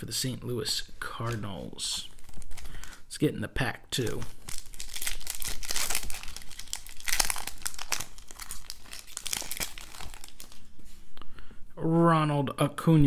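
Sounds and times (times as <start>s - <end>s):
foil wrapper tearing and crinkling: 1.2s - 3.0s, 4.0s - 10.6s.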